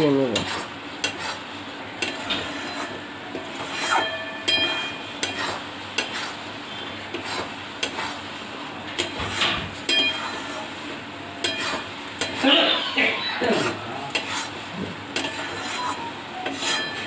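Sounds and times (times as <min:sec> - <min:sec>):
faint sizzle: 0:00.0 - 0:17.0
metal spatula scraping a pan: 0:00.3 - 0:08.3, 0:09.0 - 0:10.8, 0:11.4 - 0:17.0.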